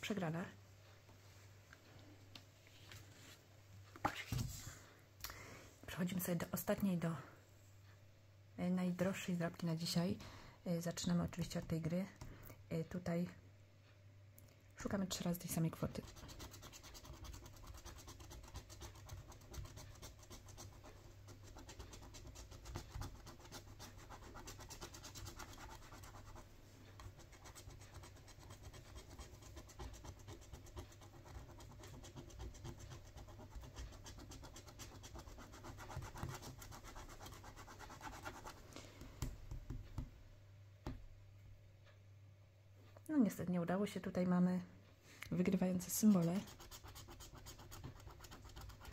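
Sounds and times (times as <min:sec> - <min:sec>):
scratch card being scratched: 0:16.0 - 0:26.4, 0:46.0 - 0:48.9.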